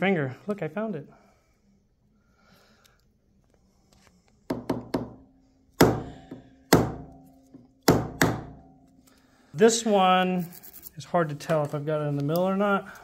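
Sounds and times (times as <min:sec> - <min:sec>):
hammer striking punch: 0:05.8 - 0:08.8.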